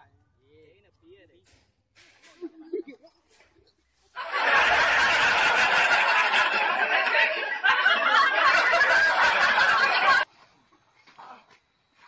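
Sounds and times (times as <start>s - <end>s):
loud laughter: 4.2s - 10.2s.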